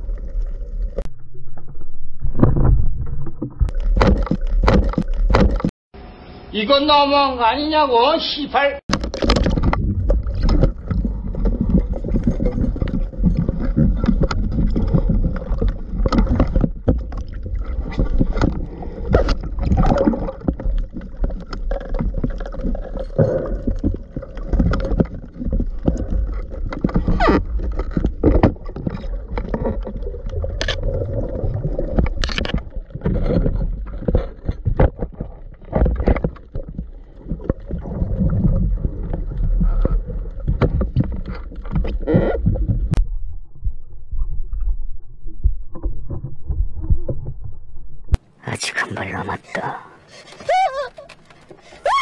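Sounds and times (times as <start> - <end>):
muffled underwater sloshing: 8.9 - 47.6.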